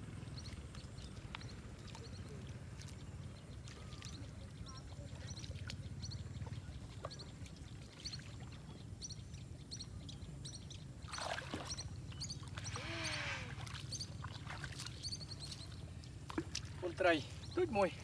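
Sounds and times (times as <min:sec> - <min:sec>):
low steady rumble: 0:00.0 - 0:18.0
small birds chirping: 0:00.1 - 0:18.0
water splashing: 0:11.0 - 0:18.0.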